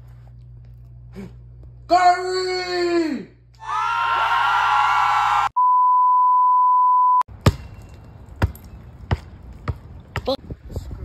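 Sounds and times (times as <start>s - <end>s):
electronic beep tone: 5.6s - 7.3s
basketball bouncing on wet pavement: 7.3s - 10.4s.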